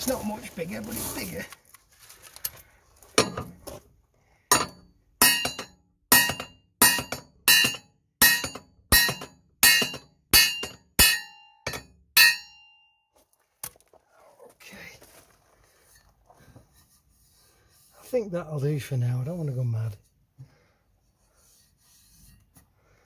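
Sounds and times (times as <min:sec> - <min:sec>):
hammer striking metal blade: 0:04.5 - 0:12.8.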